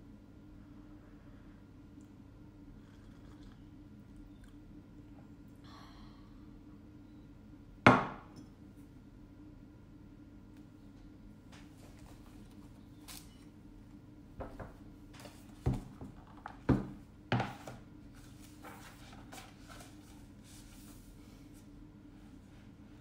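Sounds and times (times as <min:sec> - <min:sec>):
steady low hum: 0:00.0 - 0:23.0
paper rustling: 0:18.2 - 0:21.0.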